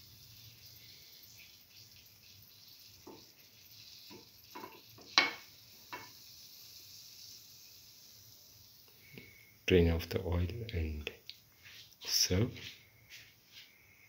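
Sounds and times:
fritters sizzling in oil: 0:00.0 - 0:09.6
utensil knocking and scraping pan: 0:04.1 - 0:06.1.

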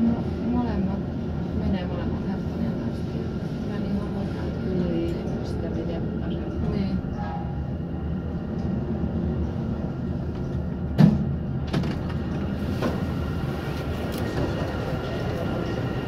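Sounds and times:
elevator low rumble: 0:00.0 - 0:16.0
loud clunk: 0:11.0 - 0:12.2.

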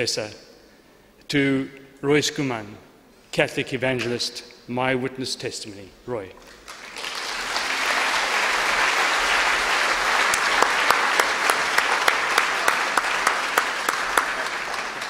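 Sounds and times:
audience applauding: 0:06.4 - 0:15.0.

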